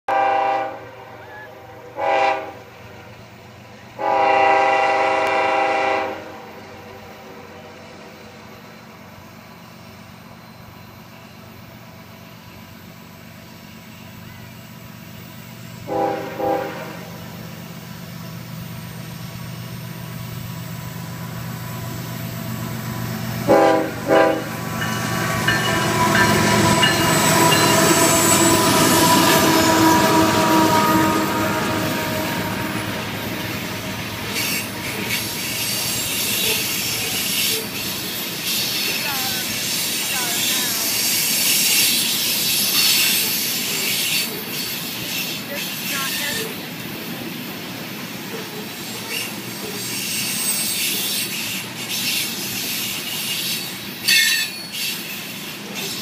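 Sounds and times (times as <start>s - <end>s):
diesel locomotive engine rumble: 0.0s - 56.0s
locomotive air horn blasts: 0.1s - 1.2s, 1.8s - 2.7s, 4.0s - 6.5s, 15.8s - 17.3s, 23.4s - 24.6s, 25.6s - 33.8s
train wheels on rail: 0.1s - 56.0s.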